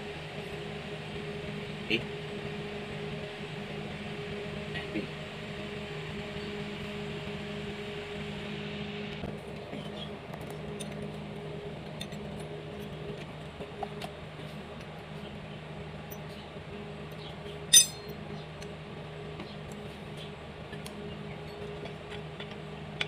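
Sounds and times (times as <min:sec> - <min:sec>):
low hum: 0:17.5 - 0:18.5
wrench clinking on metal parts: 0:17.7 - 0:18.1.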